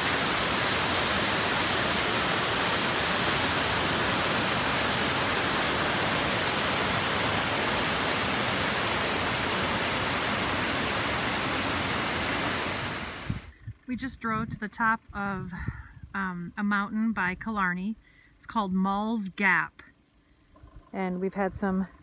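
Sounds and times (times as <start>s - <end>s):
waterfall and stream rushing: 0.0s - 13.5s.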